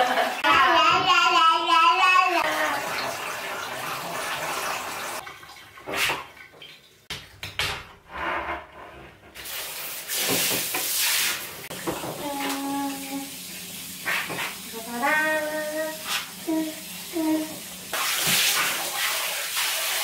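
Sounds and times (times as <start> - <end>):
shower head spraying water: 9.4 - 20.0.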